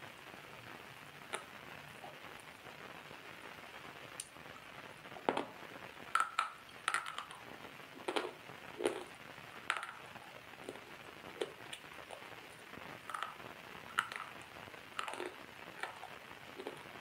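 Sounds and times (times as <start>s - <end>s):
faint steady hiss: 0.0s - 17.0s
water drops dripping: 6.1s - 7.4s, 9.7s - 10.1s.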